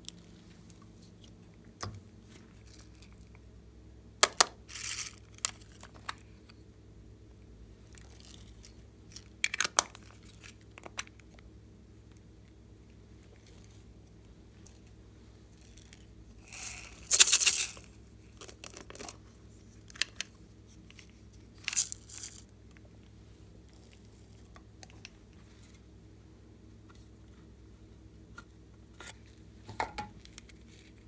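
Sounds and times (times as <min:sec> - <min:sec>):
small pieces poured rustling: 0:15.6 - 0:19.2, 0:21.6 - 0:22.4.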